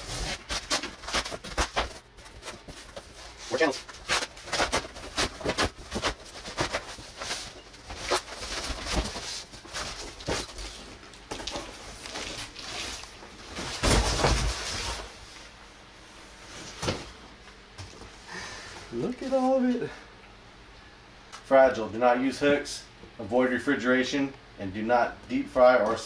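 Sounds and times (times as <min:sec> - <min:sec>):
cardboard rustling and scraping: 0:00.0 - 0:15.3.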